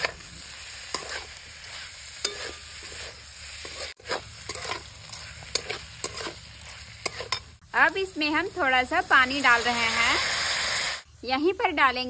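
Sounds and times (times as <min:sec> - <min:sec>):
spatula scraping a pan: 0:00.0 - 0:07.6
frying sizzle: 0:00.0 - 0:11.1.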